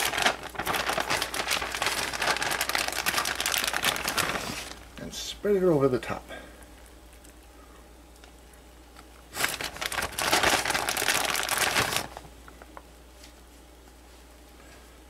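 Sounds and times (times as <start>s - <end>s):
plastic bag crinkling: 0.0s - 5.1s, 9.0s - 12.9s.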